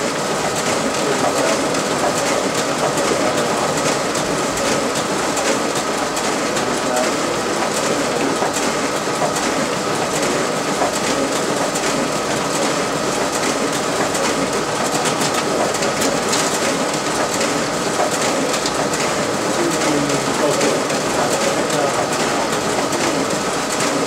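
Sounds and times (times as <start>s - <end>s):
paper feed rattle and ticking: 0.0s - 24.0s
printer mechanical whir: 0.0s - 24.0s.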